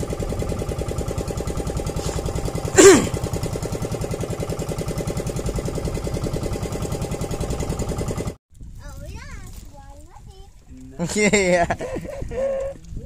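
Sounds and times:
boat engine pulsing: 0:00.0 - 0:08.4.

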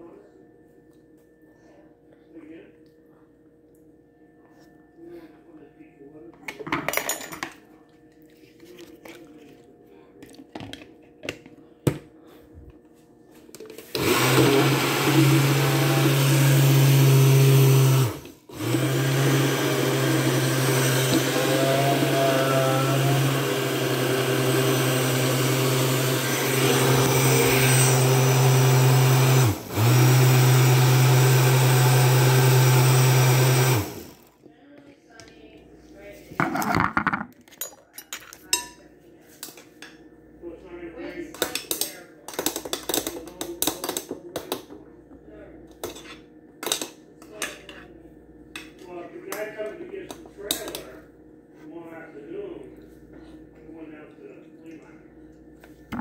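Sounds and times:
electric blender running: 0:13.9 - 0:34.3.

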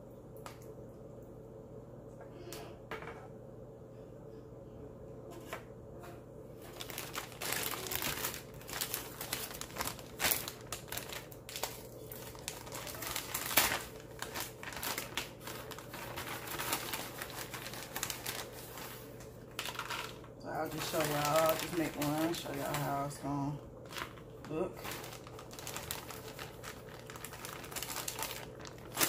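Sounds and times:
packaging crinkling: 0:06.6 - 0:29.0.

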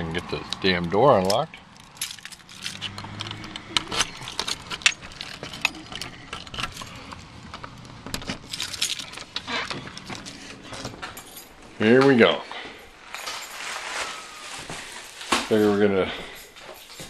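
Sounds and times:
keys jangling: 0:01.2 - 0:14.4, 0:15.0 - 0:17.0
key rattling in a door lock: 0:01.3 - 0:12.2.

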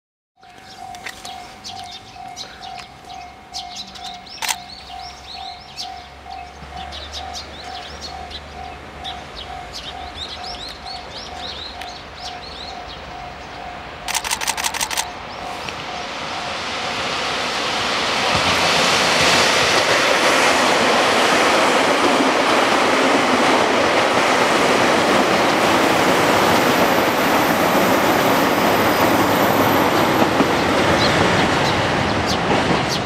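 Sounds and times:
small birds chirping: 0:00.4 - 0:13.6
level crossing bell: 0:00.4 - 0:14.0
low train rumble: 0:00.4 - 0:33.0
rattle of sharp clicks: 0:14.1 - 0:15.1.

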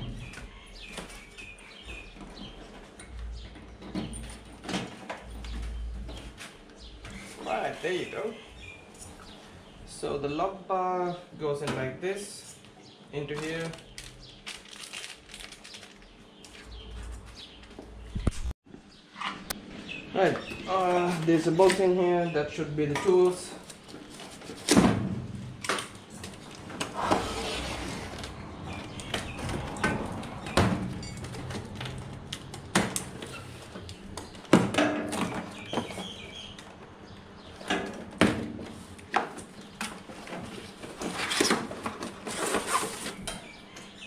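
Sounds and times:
metal tool chest clattering: 0:28.7 - 0:32.3.

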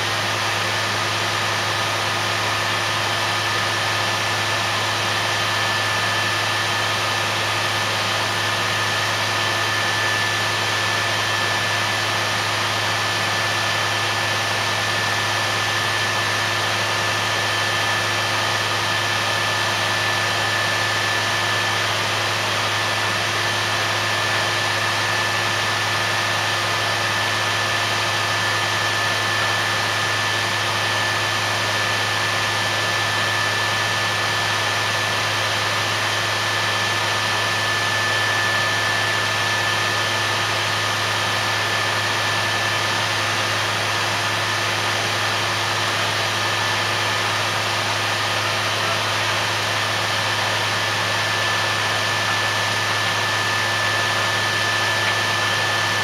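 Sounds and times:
high even whine: 0:46.1 - 0:56.0.

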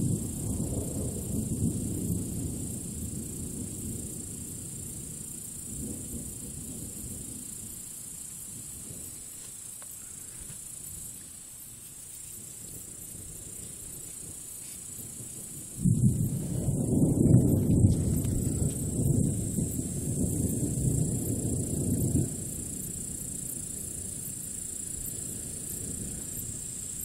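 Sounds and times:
thunder rumbling: 0:00.0 - 0:09.4, 0:12.4 - 0:27.0
steady high hiss: 0:00.0 - 0:27.0.

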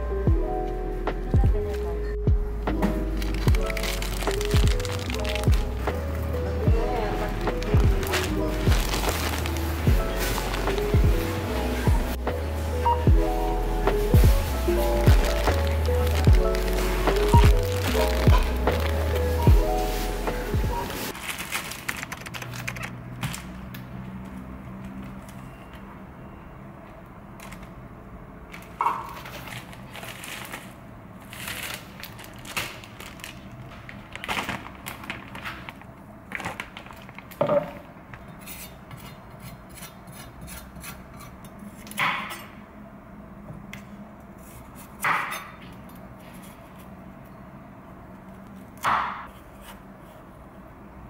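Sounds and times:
plastic packaging rustling: 0:03.0 - 0:06.3, 0:07.0 - 0:11.5, 0:14.0 - 0:23.6, 0:28.5 - 0:38.0
packs knocking on counter: 0:37.4 - 0:37.8.

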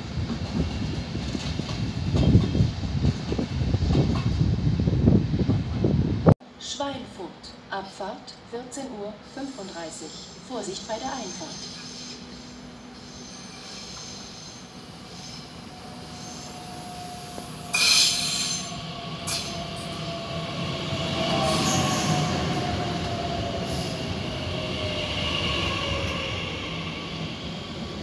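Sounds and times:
train rumbling to a stop: 0:00.0 - 0:06.4, 0:09.2 - 0:28.0
high brake squeal: 0:10.9 - 0:19.6.

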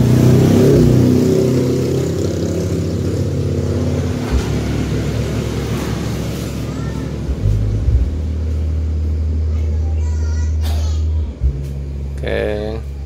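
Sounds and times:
bass-heavy music through speakers: 0:07.0 - 0:13.0.

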